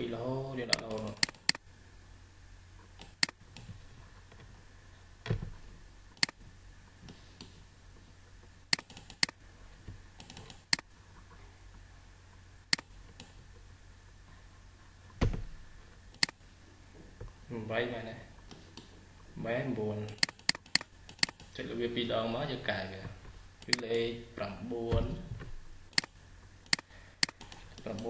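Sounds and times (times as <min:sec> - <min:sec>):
faint low hum: 0:00.0 - 0:28.0
computer mouse clicking: 0:00.7 - 0:01.6, 0:03.0 - 0:03.7, 0:06.2 - 0:06.4, 0:08.7 - 0:09.4, 0:10.2 - 0:10.9, 0:20.1 - 0:21.6, 0:25.9 - 0:28.0.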